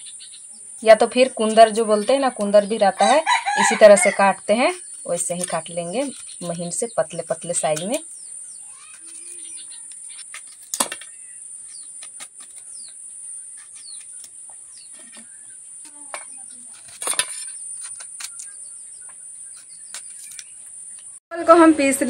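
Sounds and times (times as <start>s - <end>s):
birds chirping: 0.0s - 21.2s
knife slicing gourd: 1.2s - 8.0s.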